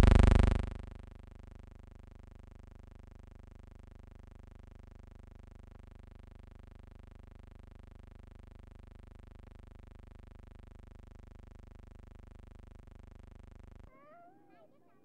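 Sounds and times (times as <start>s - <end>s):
faint buzzing hum: 0.0s - 0.9s.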